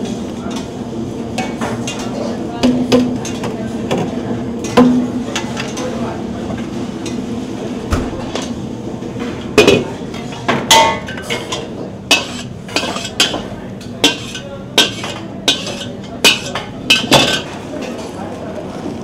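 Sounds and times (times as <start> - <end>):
steady kitchen hum: 0.0 - 19.0
ladle clanking on steel wok: 9.6 - 17.6.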